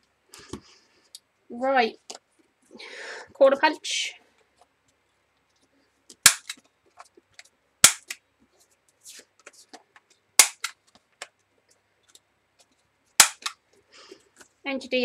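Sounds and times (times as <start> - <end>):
paper punch snapping through card: 6.3 - 6.6, 10.4 - 10.8, 13.2 - 13.6.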